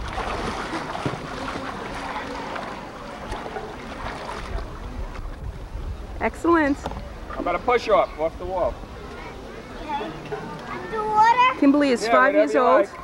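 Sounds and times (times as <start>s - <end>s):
child splashing in pool water: 0.0s - 4.8s.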